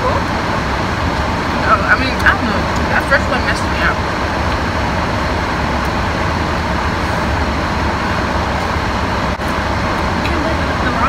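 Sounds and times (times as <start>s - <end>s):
car air conditioning blowing: 0.0s - 11.0s
low hum: 0.0s - 11.0s.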